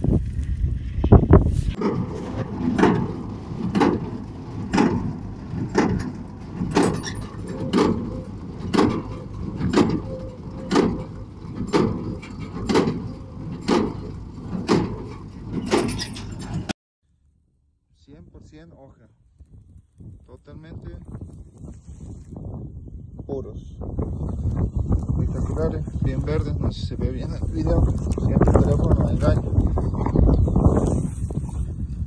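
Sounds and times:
baler machine running: 0:01.8 - 0:16.7.

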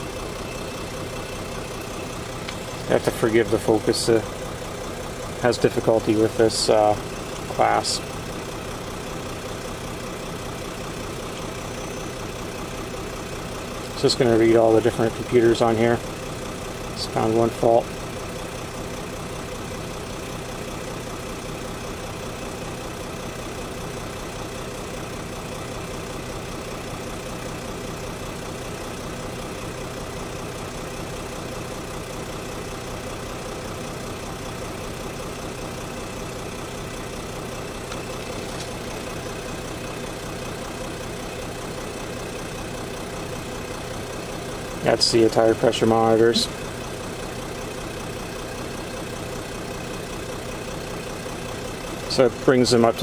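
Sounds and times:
diesel engine idling: 0:00.0 - 0:53.0.

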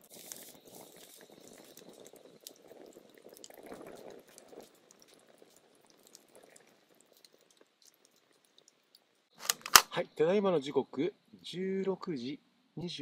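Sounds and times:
low rush of flames: 0:00.0 - 0:09.5
fire crackles and pops: 0:00.0 - 0:10.0.

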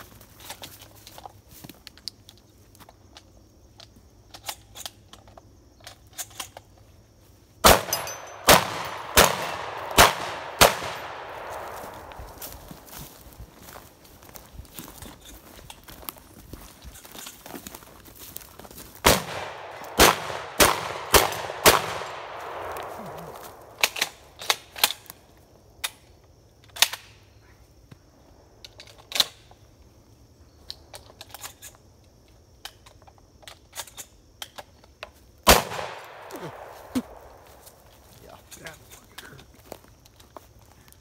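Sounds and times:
shotgun shots echoing: 0:07.6 - 0:12.6, 0:19.0 - 0:24.3, 0:35.5 - 0:37.4
quieter cracks and clicks: 0:19.1 - 0:25.2.

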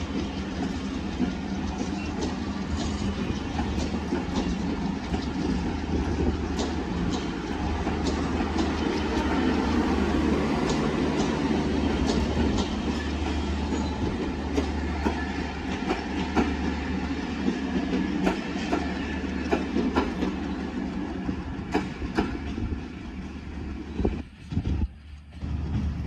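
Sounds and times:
train rumble: 0:00.0 - 0:26.0
train wheels clicking on rail joints: 0:00.0 - 0:26.0.

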